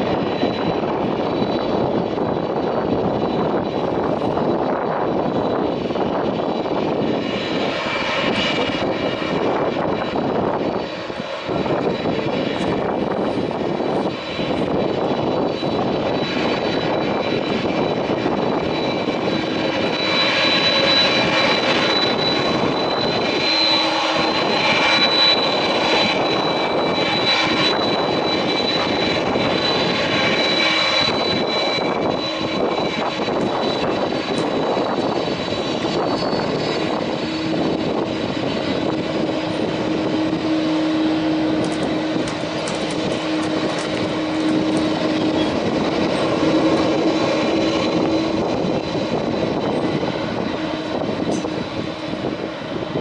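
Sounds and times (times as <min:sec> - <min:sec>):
jet engines whining: 0:00.0 - 0:53.0.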